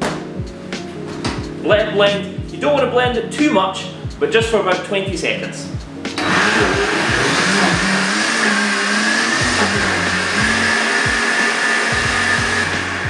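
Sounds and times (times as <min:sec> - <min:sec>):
blender motor whining: 0:06.2 - 0:13.0.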